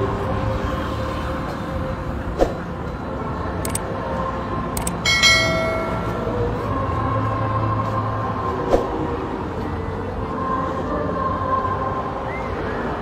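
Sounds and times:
steady background din: 0:01.3 - 0:11.9
notification bell ding: 0:05.1 - 0:06.4.

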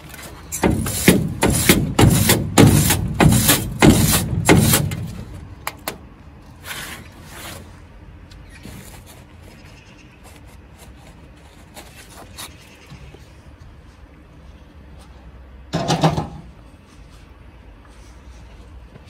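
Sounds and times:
hammer on sheet metal: 0:00.6 - 0:05.2.

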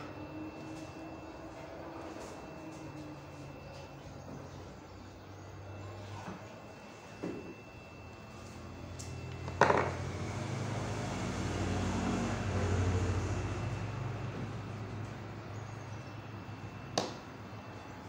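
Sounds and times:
passing vehicle engine drone: 0:08.6 - 0:16.8.

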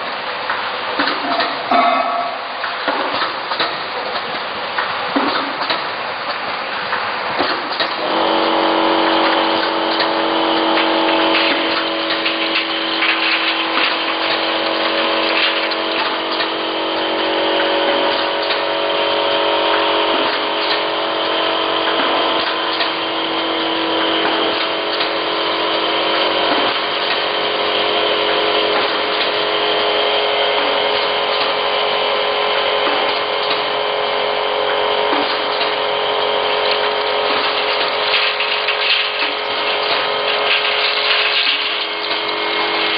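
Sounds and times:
machine hum: 0:00.0 - 0:04.1, 0:08.0 - 0:42.9
clicks and clatter of bottles: 0:36.7 - 0:42.3.

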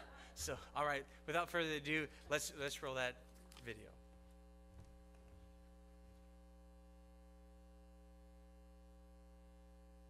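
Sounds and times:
electrical mains hum: 0:00.0 - 0:10.0.

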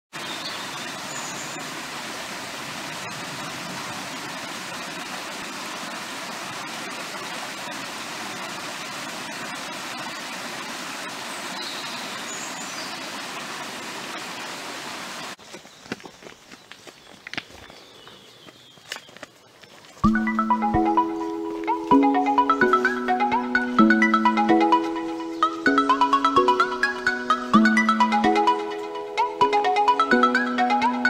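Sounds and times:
stream running over rocks: 0:00.1 - 0:29.4
light footsteps on a path: 0:15.4 - 0:20.2, 0:20.8 - 0:22.1.

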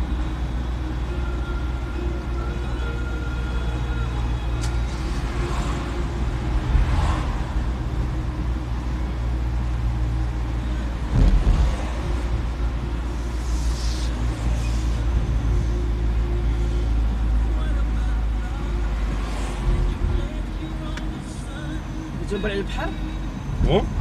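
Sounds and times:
car engine and road noise: 0:00.0 - 0:24.0
loud low thump: 0:11.1 - 0:11.9.

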